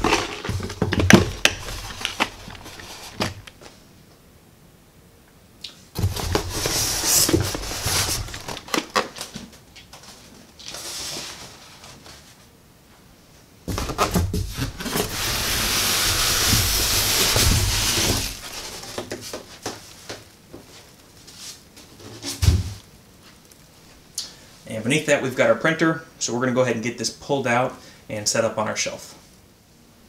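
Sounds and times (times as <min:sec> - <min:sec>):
foam scraping against cardboard: 0:00.0 - 0:03.5, 0:06.0 - 0:08.8, 0:13.8 - 0:19.5.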